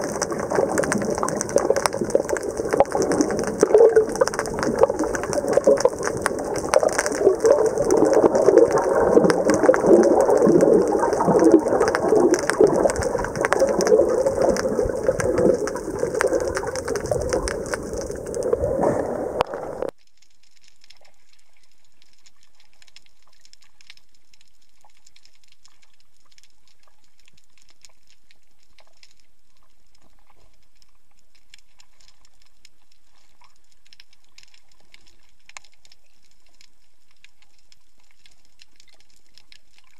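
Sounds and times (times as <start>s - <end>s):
water swirling and rushing: 0.0s - 19.9s
small crackles and pops: 0.0s - 39.9s.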